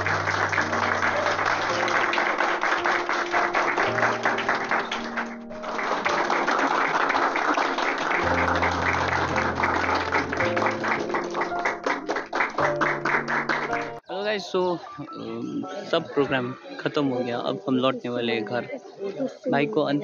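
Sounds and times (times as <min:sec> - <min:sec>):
crowd clapping: 0:00.0 - 0:14.0.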